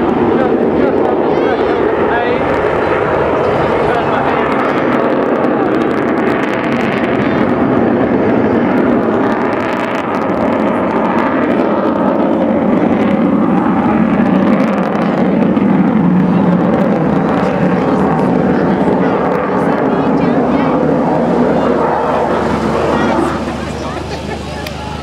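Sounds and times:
loud jet aircraft flying overhead: 0.0s - 25.0s.

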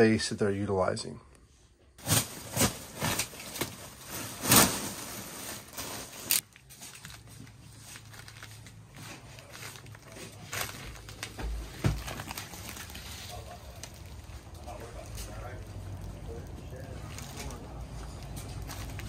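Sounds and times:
foil insulation tearing: 2.0s - 7.2s, 7.9s - 17.8s
foil rustling: 2.0s - 19.0s.

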